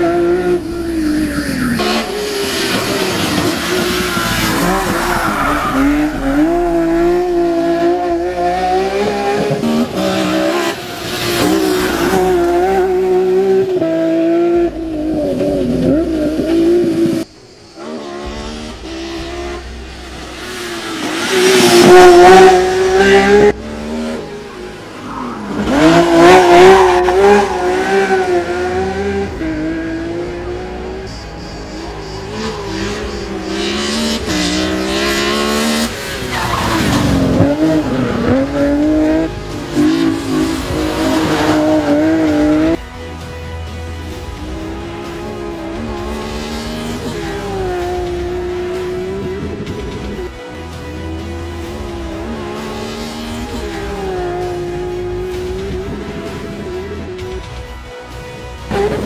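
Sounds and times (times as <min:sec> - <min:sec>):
race car engine revving: 0:00.0 - 0:42.8, 0:44.4 - 0:57.4, 0:58.6 - 0:59.0
tyre squeal: 0:00.6 - 0:06.9.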